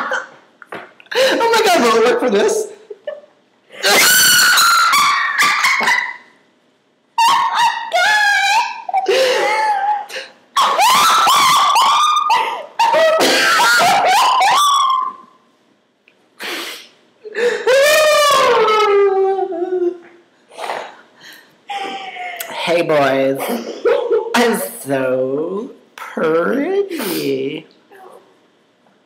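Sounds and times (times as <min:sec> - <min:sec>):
people laughing hysterically: 0:03.0 - 0:06.4, 0:07.2 - 0:15.3, 0:17.3 - 0:20.0, 0:23.5 - 0:24.4.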